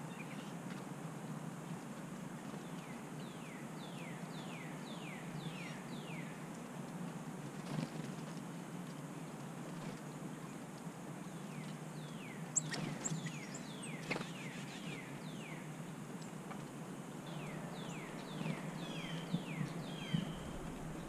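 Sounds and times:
bird singing whistled notes: 11.5s - 15.7s, 17.2s - 21.0s
low steady hum: 14.9s - 21.0s.

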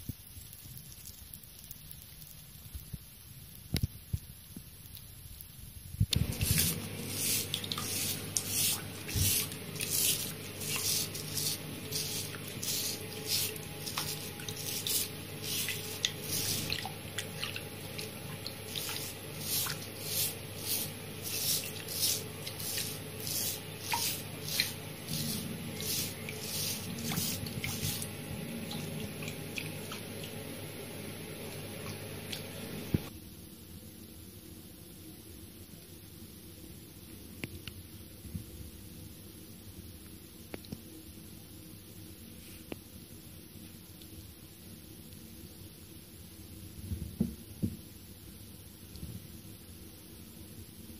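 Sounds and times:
toothbrush scrubbing quills: 6.1s - 30.5s
water in sink: 6.1s - 33.1s.

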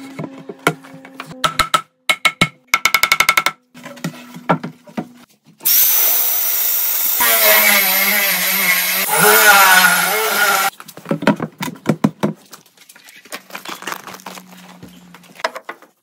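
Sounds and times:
cordless drill boring into wood: 5.7s - 10.7s.

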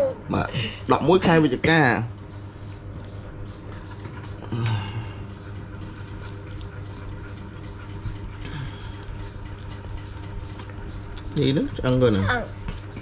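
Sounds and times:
steady low hum: 0.0s - 13.0s
chewing: 2.7s - 11.4s.

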